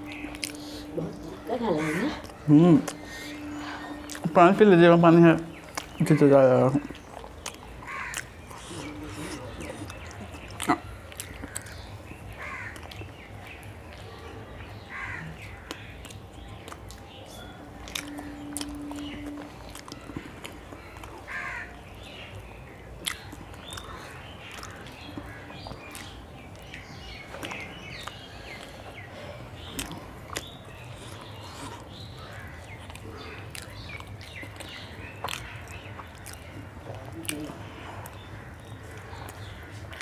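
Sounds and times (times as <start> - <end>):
person chewing food: 0.0 - 1.5, 2.1 - 4.5, 5.4 - 40.0
birds chirping: 0.0 - 40.0
mouth clicks: 23.0 - 40.0.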